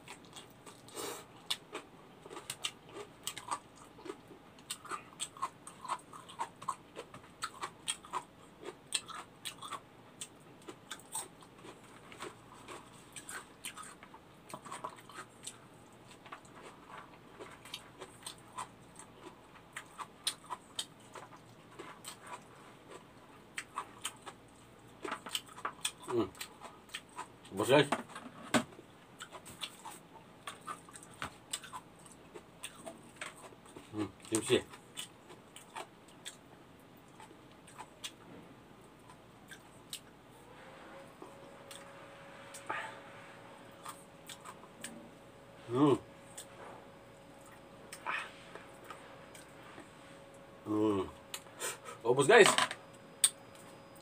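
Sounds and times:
wet chewing and lip smacks: 0:43.8 - 0:45.0.

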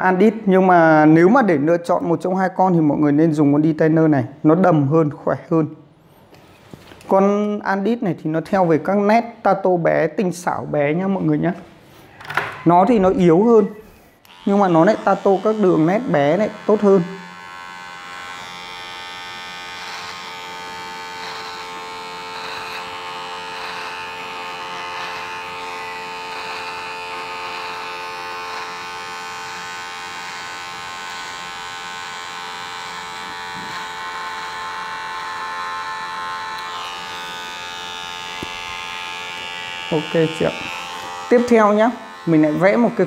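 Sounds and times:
trimmer blade cutting hair: 0:13.6 - 0:43.0
electric hair trimmer buzzing: 0:14.2 - 0:43.0.

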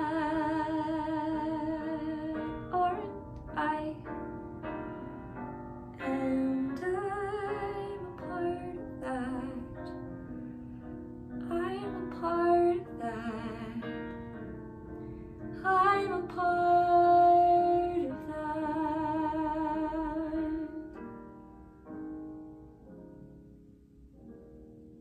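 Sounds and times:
woman singing with vibrato: 0:00.0 - 0:04.1, 0:06.0 - 0:10.0, 0:11.4 - 0:14.1, 0:15.6 - 0:21.0
piano accompaniment: 0:00.0 - 0:25.0.

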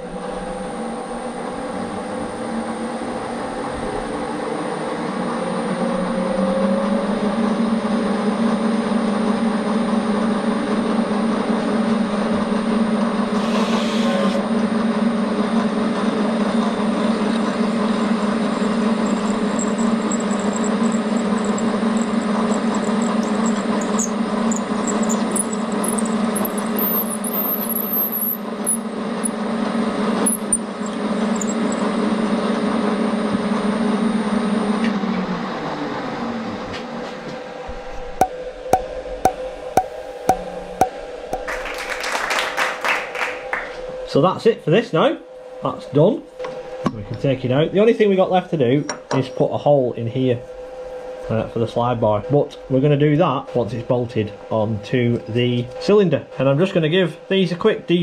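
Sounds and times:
milling machine spindle humming: 0:11.7 - 0:34.8
cutting squeaks: 0:17.3 - 0:29.4, 0:30.2 - 0:31.9.

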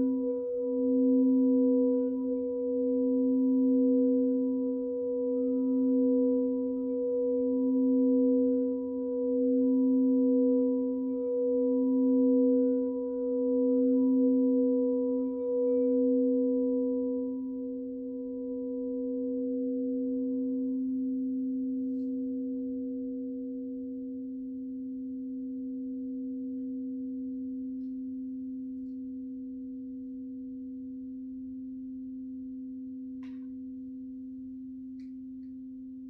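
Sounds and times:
crystal singing bowls ringing: 0:00.0 - 0:34.1.

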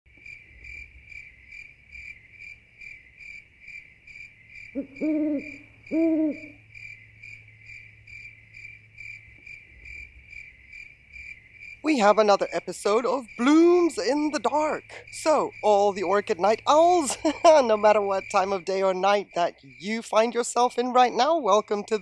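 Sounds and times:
crickets chirping: 0:00.1 - 0:22.0
owl hooting: 0:04.7 - 0:06.7.

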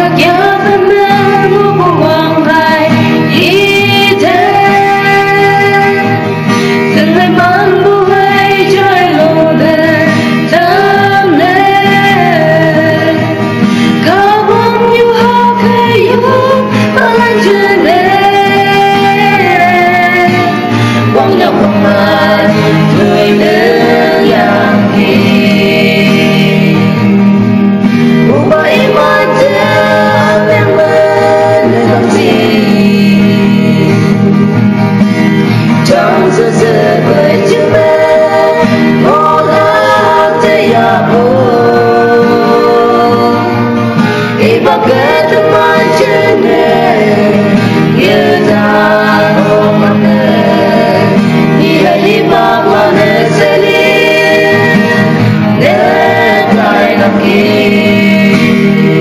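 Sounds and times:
person singing a melody: 0:00.0 - 0:27.1, 0:28.0 - 0:34.3, 0:35.7 - 0:59.0
instrumental accompaniment with bass: 0:00.0 - 0:59.0.

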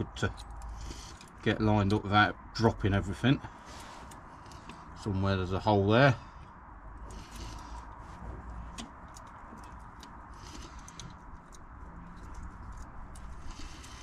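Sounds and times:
light metal clicks and taps: 0:08.7 - 0:10.2.

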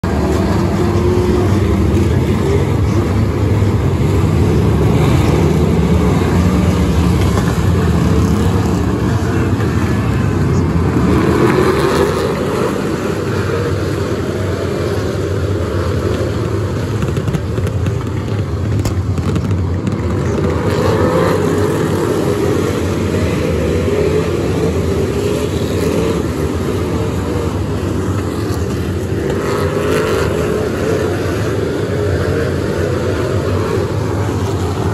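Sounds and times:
race car engines: 0:00.0 - 0:34.9.

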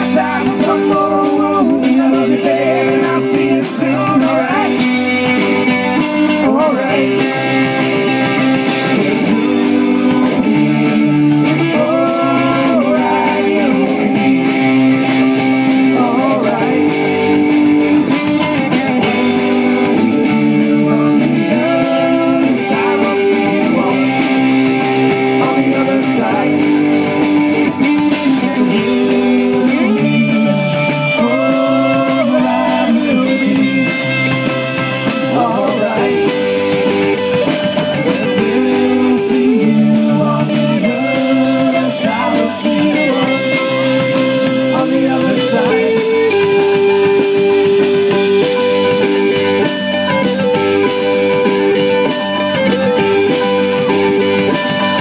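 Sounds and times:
acoustic guitar: 0:00.0 - 0:55.0
drum kit: 0:00.0 - 0:55.0
electric guitar: 0:00.0 - 0:55.0.

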